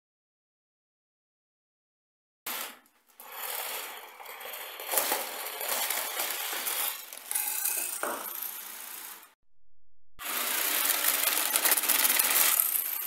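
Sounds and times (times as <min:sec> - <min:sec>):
plastic gears and tracks clattering: 0:02.5 - 0:09.3, 0:10.2 - 0:13.0.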